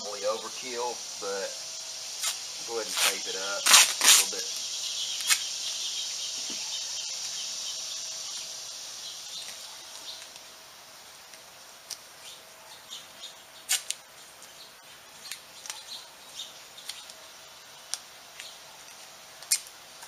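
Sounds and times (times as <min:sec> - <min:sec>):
hands scraping through dirt and straw: 0:02.2 - 0:04.5.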